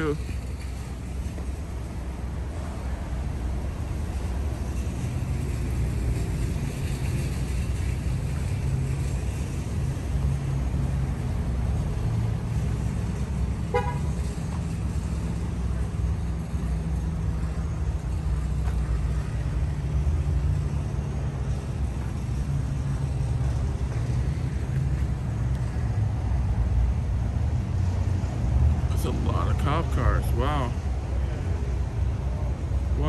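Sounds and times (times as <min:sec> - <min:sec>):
low rumble of vehicle engines: 0:00.0 - 0:33.0
vehicle horn toot: 0:13.7 - 0:14.1.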